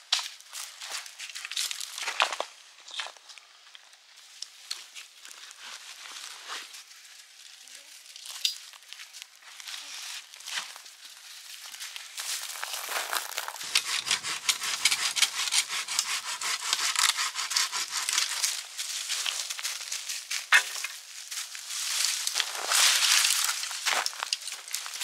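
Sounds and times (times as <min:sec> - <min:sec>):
hand saw cutting wood: 0:13.4 - 0:19.3.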